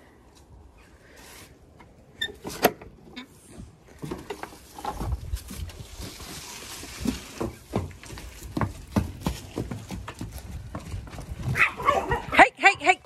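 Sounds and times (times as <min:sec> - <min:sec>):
horse hooves thudding on straw: 0:04.7 - 0:12.1.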